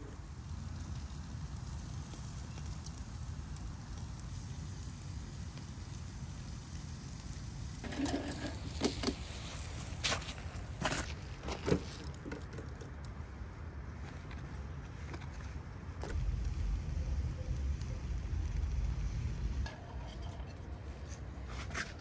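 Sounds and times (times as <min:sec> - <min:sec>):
kebabs sizzling on grill: 0:00.0 - 0:11.0, 0:16.1 - 0:21.6
low steady rumble: 0:15.9 - 0:21.5.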